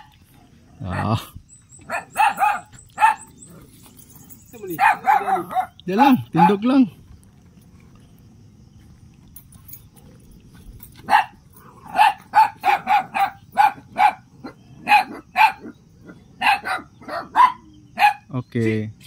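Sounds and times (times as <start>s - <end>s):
dog barking: 0.8s - 3.6s, 4.5s - 6.7s, 11.0s - 18.3s.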